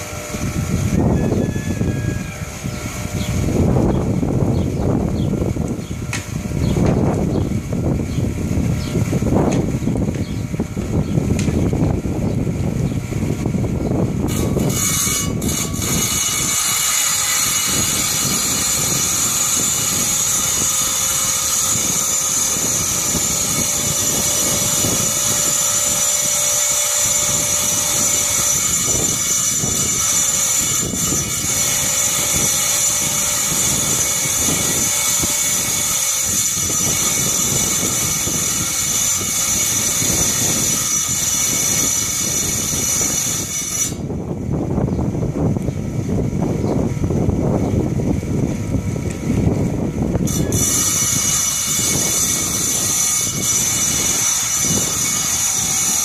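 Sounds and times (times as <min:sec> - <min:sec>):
tile saw whining: 0:00.0 - 0:07.4, 0:14.2 - 0:44.2, 0:50.2 - 0:56.0.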